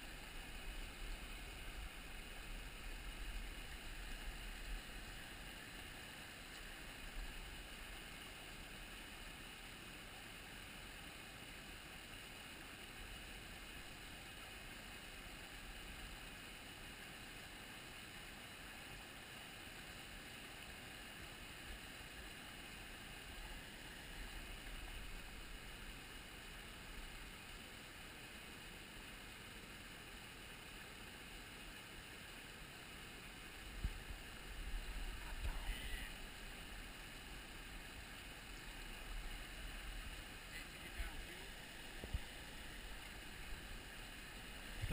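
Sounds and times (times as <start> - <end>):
stream running over rocks: 0.0 - 44.9.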